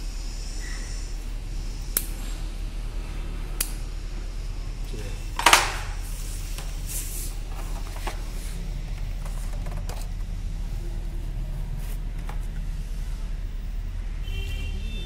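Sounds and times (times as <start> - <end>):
low workshop hum: 0.0 - 15.0.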